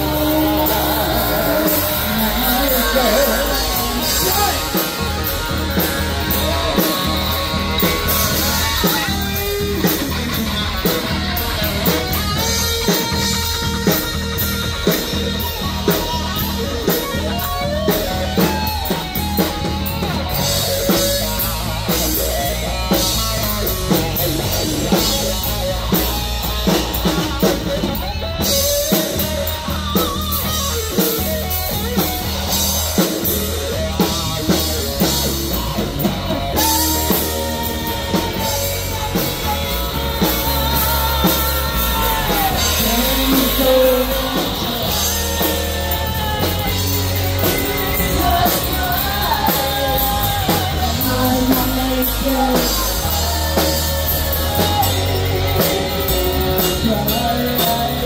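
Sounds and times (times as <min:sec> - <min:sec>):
distorted electric guitar: 0:00.0 - 0:58.0
drum kit: 0:00.0 - 0:58.0
woman singing: 0:36.6 - 0:58.0.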